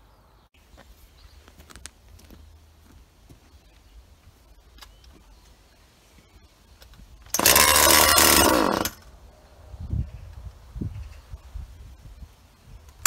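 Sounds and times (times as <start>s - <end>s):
chainsaw engine burst: 7.3s - 9.0s
chainsaw recoil starter pull: 7.3s - 9.0s.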